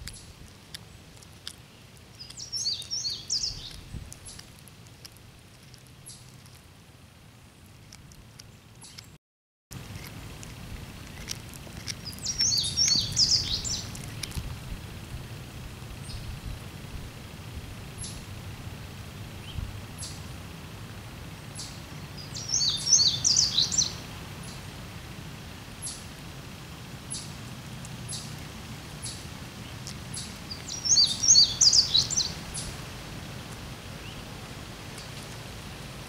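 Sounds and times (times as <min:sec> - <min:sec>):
songbird singing: 0:00.0 - 0:06.6, 0:07.2 - 0:09.2, 0:09.9 - 0:14.8, 0:15.7 - 0:16.6, 0:17.8 - 0:18.4, 0:19.0 - 0:20.3, 0:21.4 - 0:24.8, 0:25.7 - 0:26.2, 0:26.9 - 0:36.0
high bird chirps: 0:02.2 - 0:04.4, 0:12.0 - 0:13.9, 0:21.6 - 0:24.0, 0:30.2 - 0:32.7.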